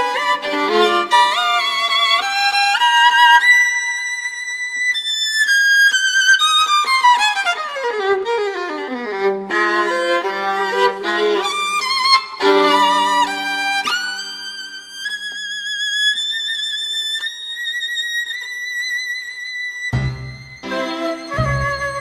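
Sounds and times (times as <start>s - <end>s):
solo violin slow melody: 0.0s - 22.0s.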